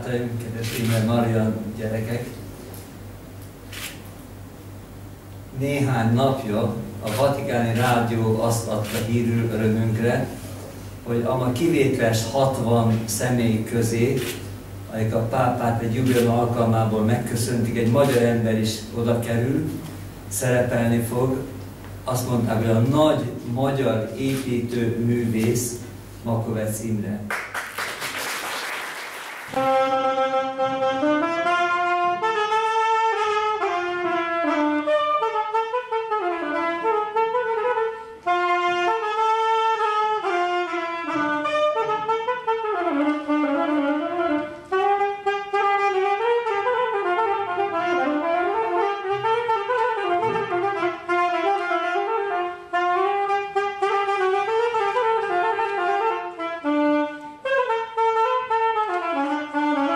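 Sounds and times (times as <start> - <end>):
wind instrument slow melody: 29.6 - 59.9.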